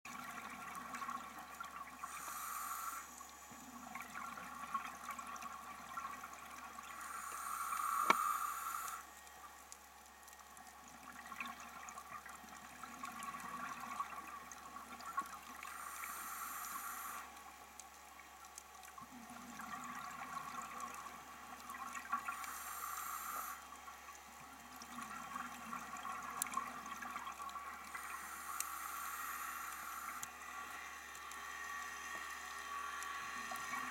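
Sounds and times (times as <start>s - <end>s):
regulator breathing hiss: 2.0s - 3.5s, 7.0s - 9.1s, 15.7s - 17.3s, 22.4s - 23.6s, 28.0s - 30.3s.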